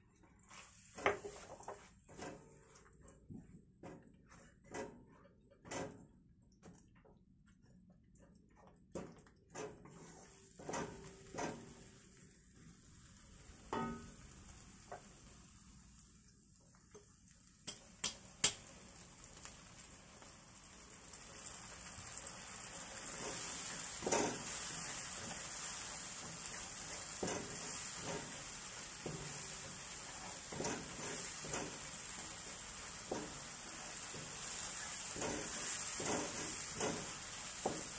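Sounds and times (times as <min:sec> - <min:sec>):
paste sizzling in oil: 0:00.4 - 0:02.8, 0:09.8 - 0:37.9
wooden spatula scraping a wok: 0:00.4 - 0:05.9, 0:09.6 - 0:15.4, 0:22.5 - 0:37.9.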